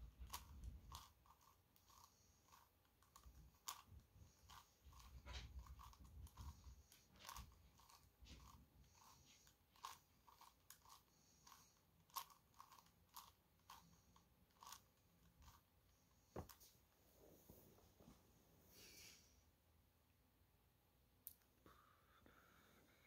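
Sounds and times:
plastic puzzle clicking: 0:09.7 - 0:15.6.

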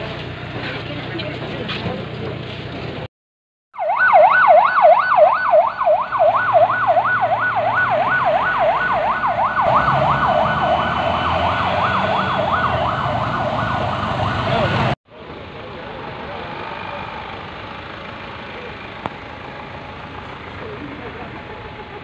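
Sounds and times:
vehicle engine and traffic rumble: 0:00.0 - 0:03.1, 0:03.8 - 0:22.0
police siren yelping: 0:03.8 - 0:15.0.

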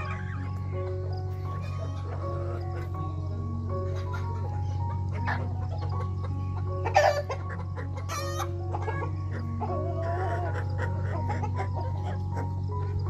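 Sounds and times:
chicken squawk: 0:00.0 - 0:00.6, 0:01.4 - 0:03.0, 0:03.9 - 0:13.0
chickens clucking: 0:00.0 - 0:13.0
harsh rasping chicken call: 0:01.5 - 0:02.6, 0:06.7 - 0:12.5.

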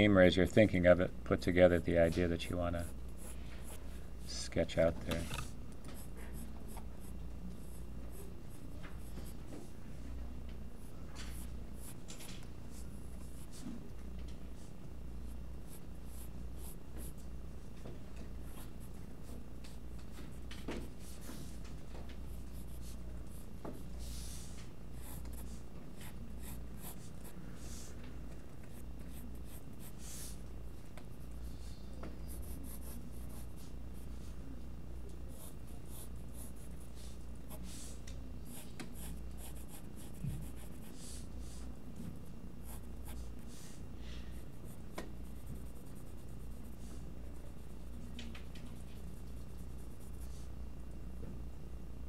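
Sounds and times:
steady low hum: 0:00.0 - 0:52.0
pencil scratching on paper: 0:22.3 - 0:28.0, 0:28.7 - 0:30.4, 0:32.2 - 0:34.4, 0:35.3 - 0:41.7, 0:42.6 - 0:48.1.

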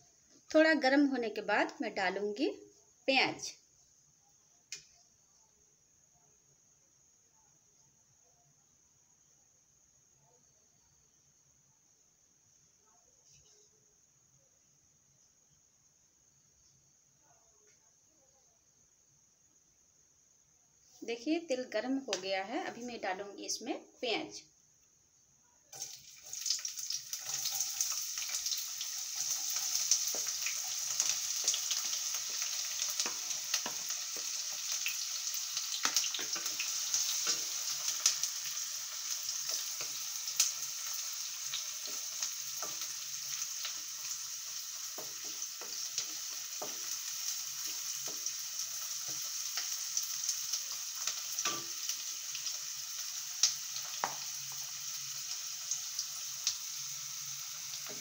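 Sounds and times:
onions sizzling in oil: 0:25.7 - 0:58.0
wooden spatula tapping and scraping: 0:30.0 - 0:34.4, 0:44.9 - 0:47.0.

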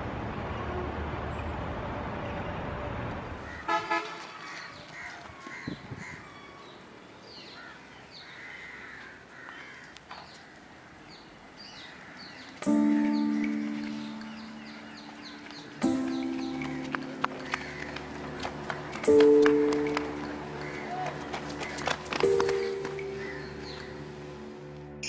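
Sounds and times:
street traffic: 0:00.0 - 0:25.0
birds chirping: 0:03.4 - 0:24.5
vehicle horn toots: 0:03.6 - 0:04.3.

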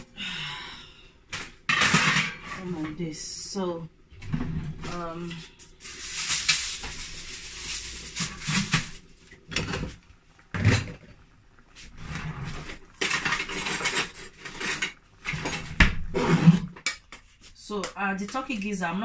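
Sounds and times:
aluminium foil crinkling: 0:05.7 - 0:09.3.

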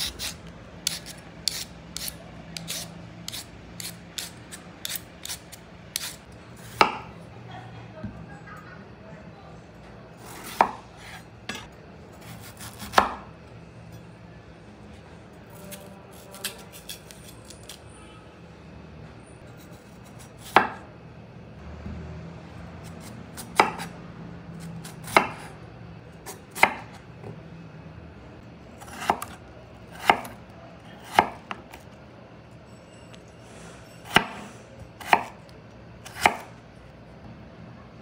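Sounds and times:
knife chopping on cutting board: 0:12.4 - 0:13.2, 0:23.4 - 0:23.9, 0:25.0 - 0:25.5, 0:26.3 - 0:27.0, 0:28.8 - 0:30.4, 0:31.0 - 0:31.6, 0:34.1 - 0:35.4, 0:36.0 - 0:36.5.

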